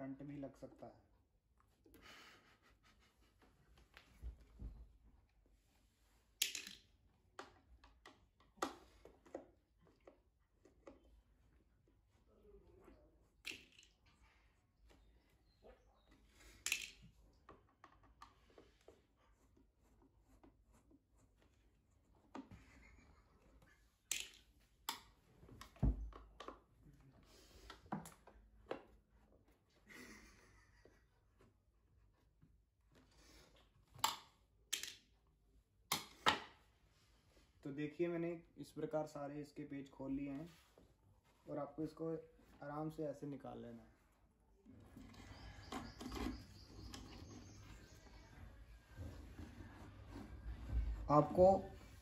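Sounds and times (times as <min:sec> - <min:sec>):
light rubbing: 0:44.7 - 0:52.0.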